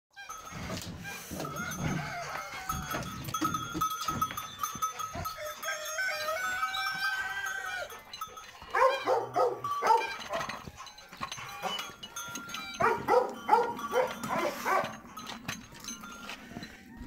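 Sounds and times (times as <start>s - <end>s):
animal calling: 4.7s - 15.2s.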